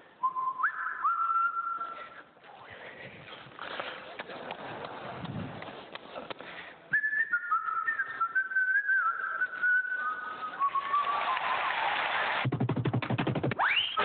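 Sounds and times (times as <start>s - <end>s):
person whistling a tune: 0.2s - 2.1s, 6.9s - 11.3s.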